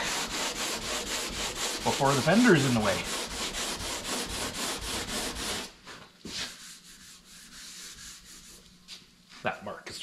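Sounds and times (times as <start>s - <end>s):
sandpaper block rubbing on metal: 0.0s - 5.7s, 6.3s - 8.6s.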